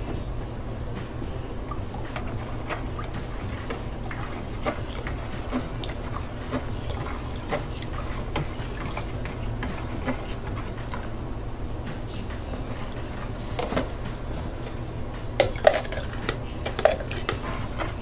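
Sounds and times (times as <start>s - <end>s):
steady low hum: 0.0s - 18.0s
ladle clinking: 1.2s - 18.0s
liquid dripping and splashing: 1.6s - 11.2s, 15.4s - 18.0s.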